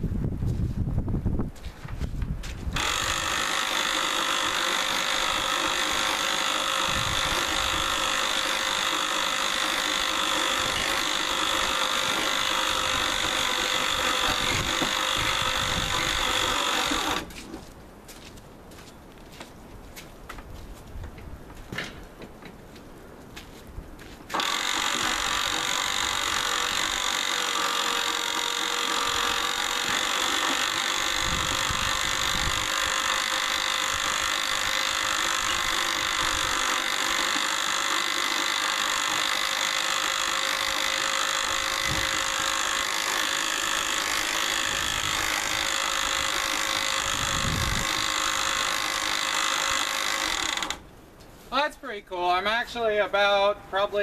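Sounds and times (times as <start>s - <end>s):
electric winch whining: 2.7s - 17.4s, 24.3s - 50.8s.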